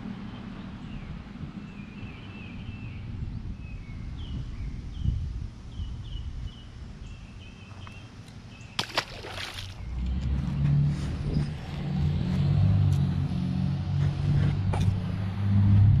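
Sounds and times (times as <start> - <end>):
small birds chirping: 0.3 - 11.8
fish splashing into water: 8.8 - 9.8
low rumble: 9.8 - 16.0.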